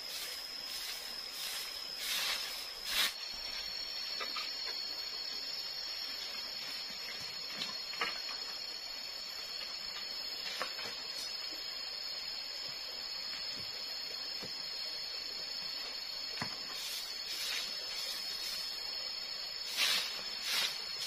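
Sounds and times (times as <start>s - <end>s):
broom sweeping leaves: 0.0s - 3.7s, 16.4s - 21.0s
forest insects droning: 0.0s - 21.0s.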